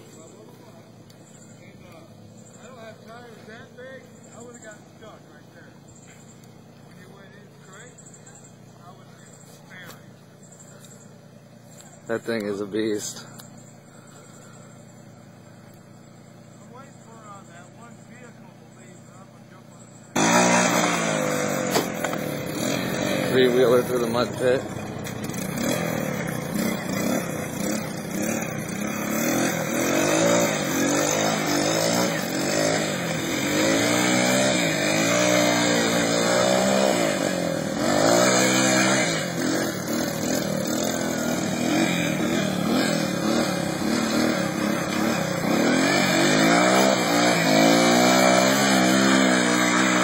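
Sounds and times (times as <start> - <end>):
atv engine revving: 0.0 - 50.0.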